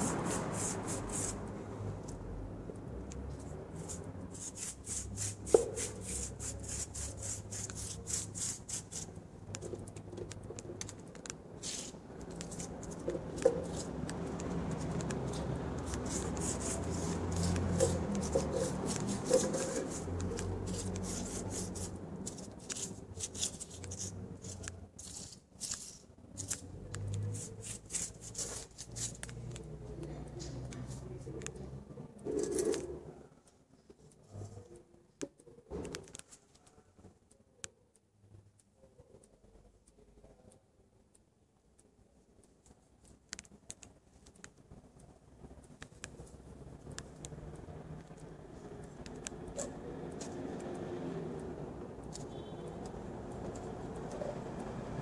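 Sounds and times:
paintbrush scrubbing: 0.0 - 1.6, 3.7 - 29.6.

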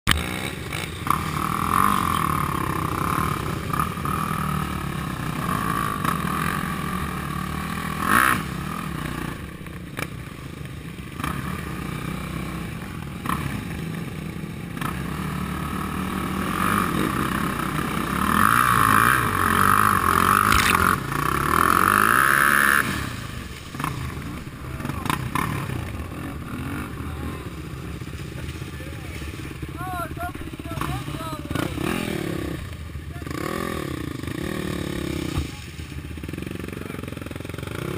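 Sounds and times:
quad and dirt bike engines: 0.0 - 37.9.

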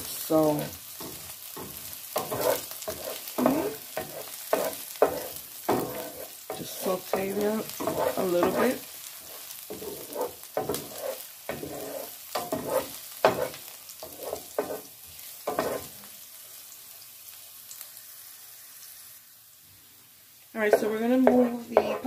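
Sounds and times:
vegetables sizzling in oil: 0.0 - 22.0
wooden spatula scraping pan: 0.6 - 16.0, 20.7 - 22.0.

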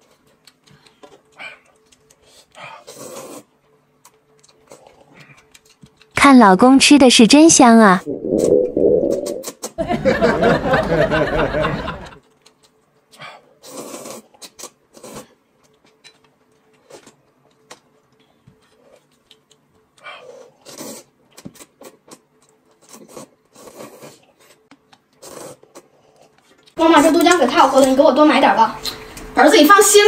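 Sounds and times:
slurping noodles: 2.6 - 3.5, 13.6 - 15.4, 20.2 - 22.2, 22.8 - 26.4
slurps and sips: 13.6 - 15.4, 22.8 - 26.3.

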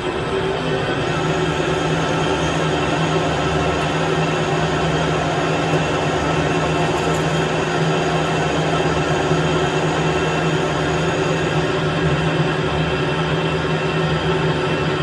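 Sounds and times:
lathe motor and gear hum: 0.0 - 15.0.

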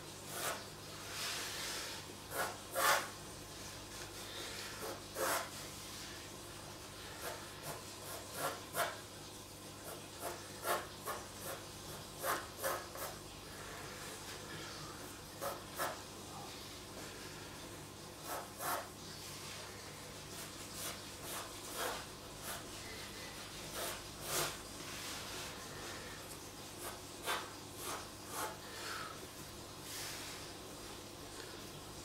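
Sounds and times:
pencil sketching on paper: 2.3 - 3.1, 4.6 - 5.6, 7.0 - 9.0, 9.8 - 13.2, 15.4 - 16.0, 18.2 - 18.9, 20.3 - 24.6, 26.8 - 28.6.

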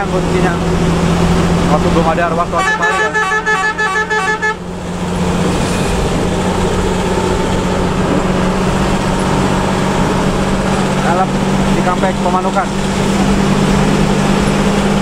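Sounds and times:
bus engine droning: 0.0 - 15.0
road noise on wet highway: 0.0 - 15.0
bus horn stepping notes: 2.5 - 4.7.

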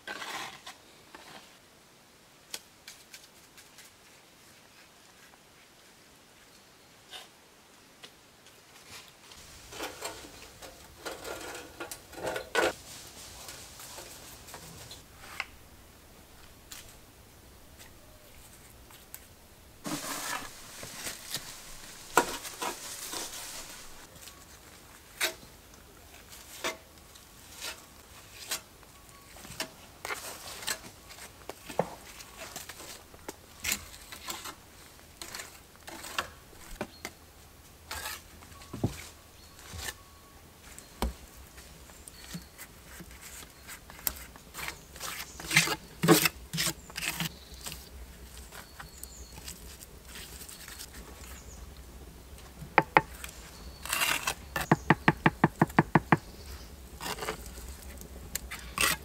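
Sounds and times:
knocks and clicks on stone: 52.8 - 53.1, 54.6 - 56.2.

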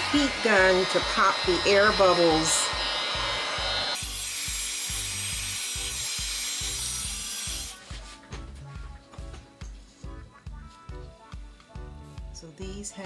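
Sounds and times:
heat gun blowing hot air: 0.0 - 7.8
background music with steady beat: 0.0 - 13.0.

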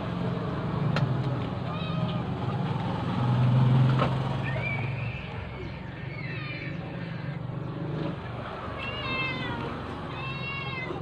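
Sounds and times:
cat meowing: 1.7 - 2.3, 8.8 - 11.0.

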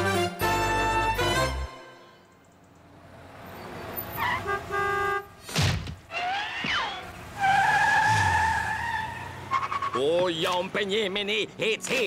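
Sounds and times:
cartoon horn toots: 4.3 - 5.4
long steady honk: 4.3 - 5.4.

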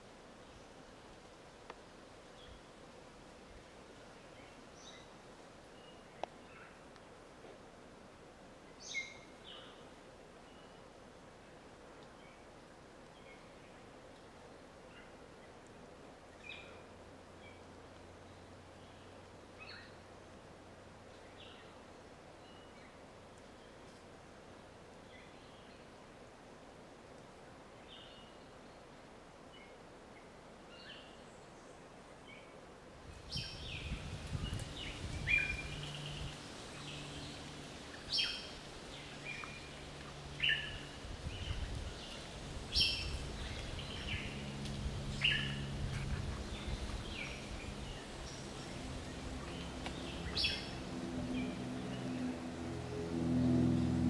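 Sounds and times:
birds chirping: 33.2 - 52.5.

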